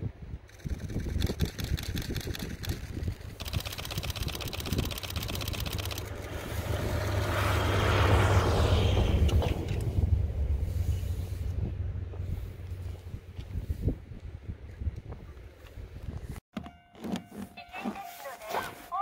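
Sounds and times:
diesel locomotive engine rumble: 0:04.6 - 0:16.4
snow rushing from plough: 0:05.7 - 0:09.2.

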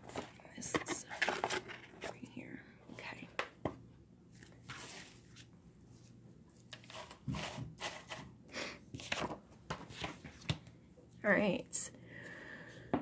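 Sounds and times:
paper and cardboard rustling: 0:04.3 - 0:08.3.

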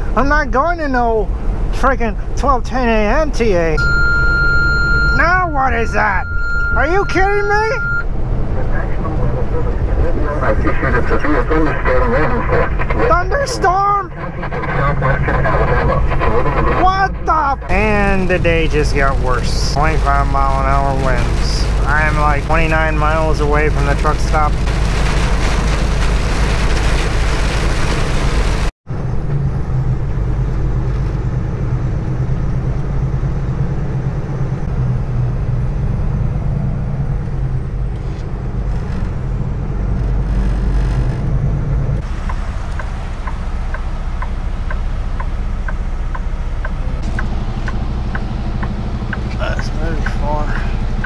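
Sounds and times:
diesel engine droning: 0:00.0 - 0:51.0
heavy rain on truck: 0:17.7 - 0:28.7, 0:42.0 - 0:51.0
steady ticking: 0:42.2 - 0:51.0.

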